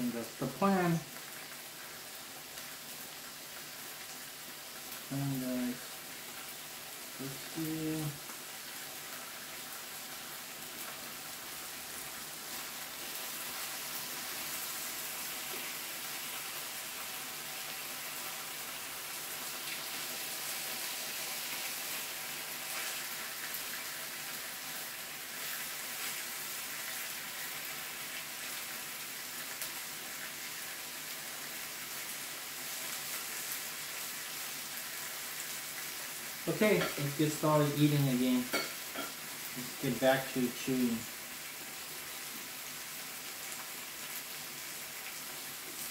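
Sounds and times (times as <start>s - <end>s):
meat sizzling on a grill: 0.0s - 45.9s.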